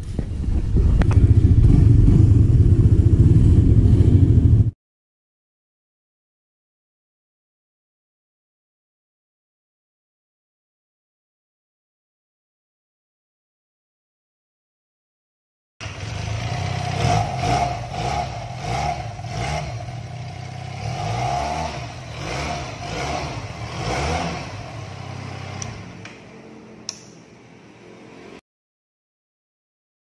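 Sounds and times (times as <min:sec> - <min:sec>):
motorcycle exhaust revving: 0:00.1 - 0:04.8, 0:15.8 - 0:26.4
sharp click: 0:26.9 - 0:27.3.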